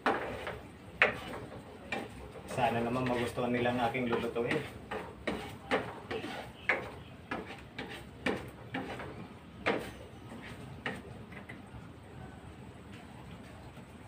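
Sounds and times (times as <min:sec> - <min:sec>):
utensil scraping metal pan: 0:00.0 - 0:11.0.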